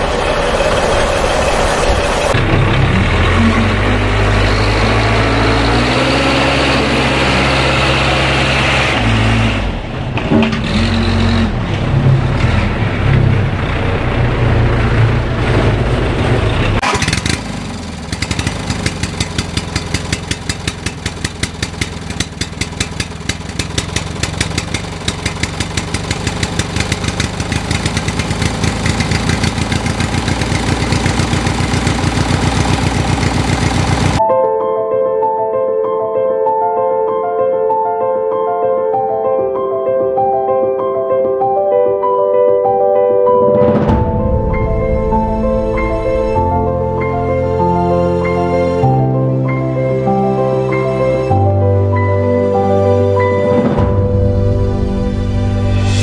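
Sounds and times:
vehicle engine running: 0.0 - 34.2.

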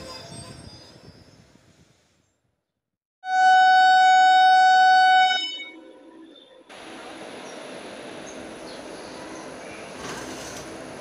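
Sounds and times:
rushing train noise: 0.0 - 2.1, 4.8 - 11.0
locomotive horn blast: 3.2 - 5.8.

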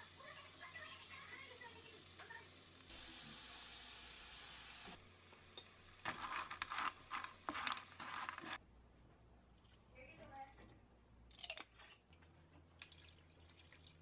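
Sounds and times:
food sizzling in oil: 0.0 - 8.6
spatula scraping pan: 6.0 - 8.6.

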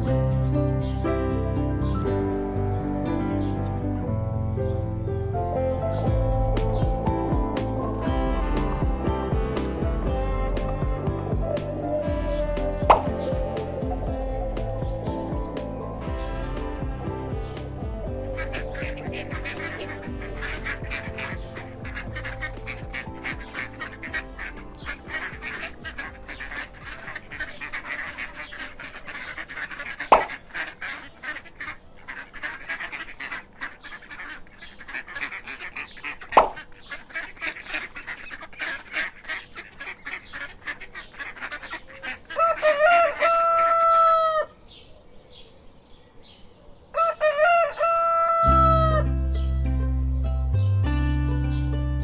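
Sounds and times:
background music: 0.0 - 29.8, 47.3 - 52.0
chickens clucking: 10.7 - 44.6, 46.9 - 49.0
rooster crowing: 42.3 - 44.6, 46.9 - 49.1.

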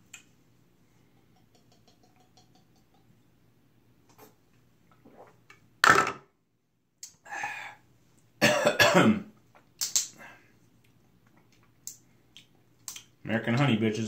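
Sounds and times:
man coughing: 8.4 - 9.3.

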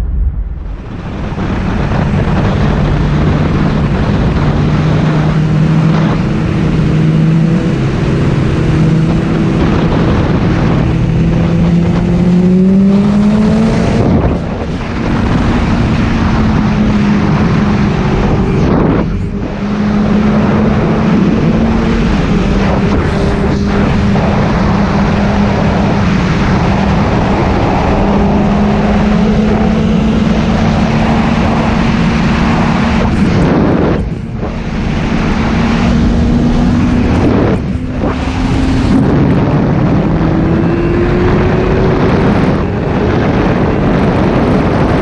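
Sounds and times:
motorcycle engine: 0.0 - 45.0
wind rush: 0.0 - 45.0.

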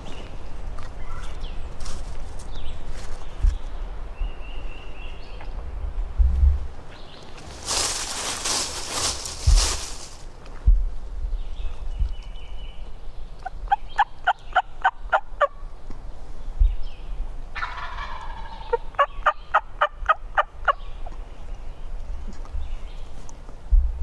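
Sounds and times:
low thumps: 7.5 - 11.0.

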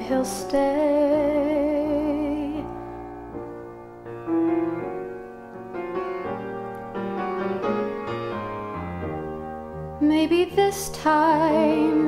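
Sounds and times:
solo piano chords and melody: 0.0 - 12.0.

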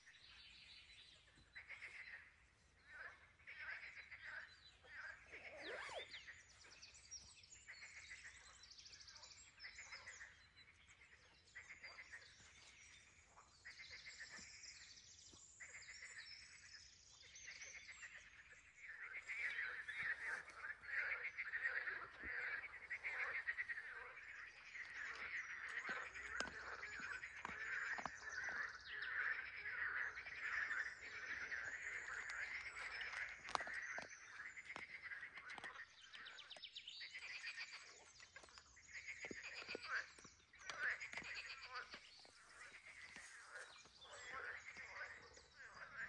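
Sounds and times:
high chirps: 5.4 - 6.2.

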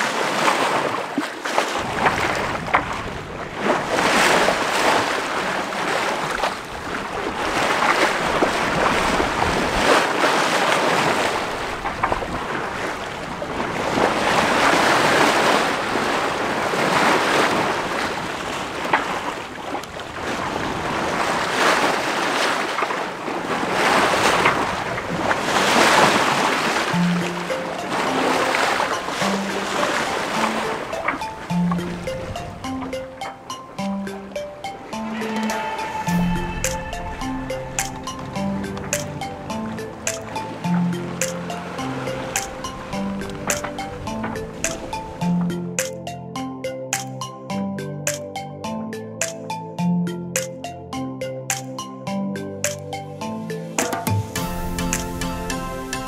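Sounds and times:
water rushing along boat hull: 0.0 - 46.1, 53.4 - 56.0
wind noise on microphone: 6.3 - 19.3.

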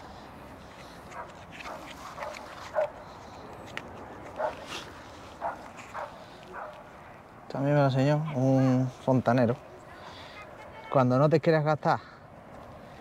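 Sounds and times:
dog barking: 1.2 - 2.9, 4.4 - 4.7, 5.4 - 6.8.

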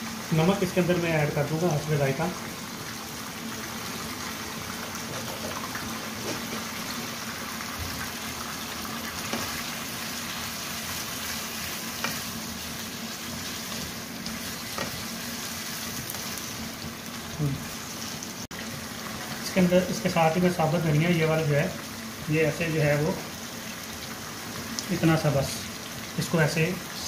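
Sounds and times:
chicken sizzling in oil: 0.0 - 27.0.

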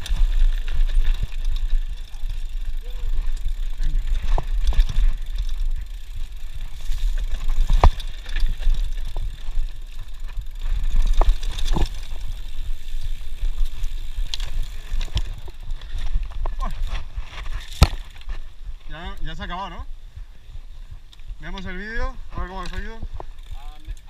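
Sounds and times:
bike knocks and rattles: 0.0 - 18.5
bike tyre noise: 0.0 - 24.0.

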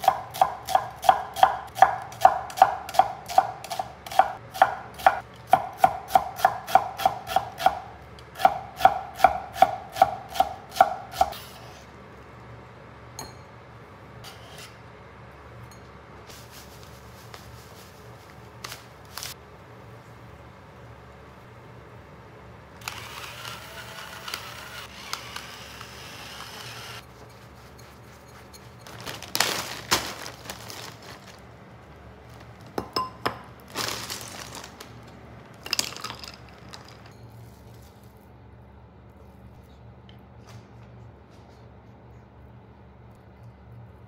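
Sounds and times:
frozen clams clinking in bag: 28.8 - 31.5, 33.6 - 35.0, 35.6 - 37.7
plastic bag crinkling: 28.8 - 32.8, 33.6 - 37.1.

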